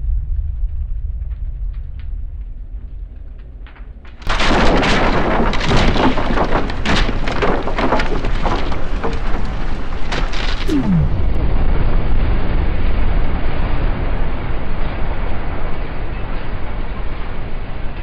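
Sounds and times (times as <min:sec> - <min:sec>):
roar with crackles and snaps: 0:04.2 - 0:11.4
explosion blast: 0:10.6 - 0:12.5.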